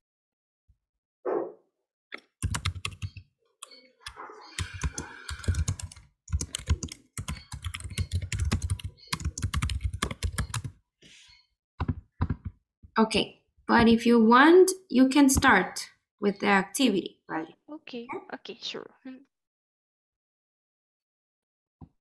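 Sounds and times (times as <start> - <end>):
keyboard typing: 2.2 - 10.8, 11.8 - 12.6.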